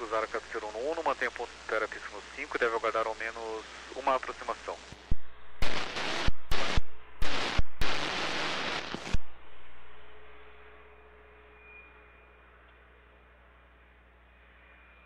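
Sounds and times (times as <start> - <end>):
radio static bursts: 0.0 - 9.5
radio clicks: 8.8 - 9.2.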